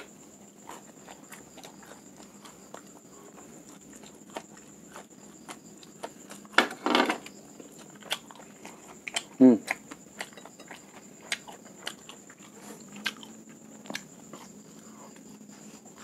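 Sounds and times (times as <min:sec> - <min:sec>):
chewing clicks and smacks: 0:07.6 - 0:15.3.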